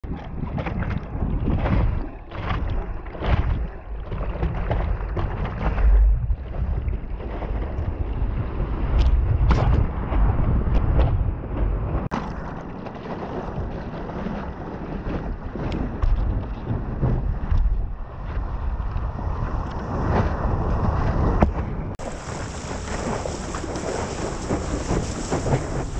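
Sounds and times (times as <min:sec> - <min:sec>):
wind buffeting microphone: 0:00.0 - 0:25.9
water rushing against board: 0:00.1 - 0:25.9
short sharp splashes: 0:22.0 - 0:25.9.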